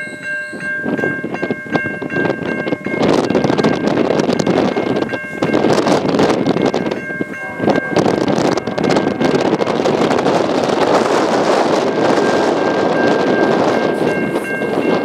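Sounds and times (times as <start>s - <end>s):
approaching freight train: 0.0s - 15.0s
wind buffeting microphone: 0.0s - 15.0s
locomotive horn chord: 7.2s - 14.1s.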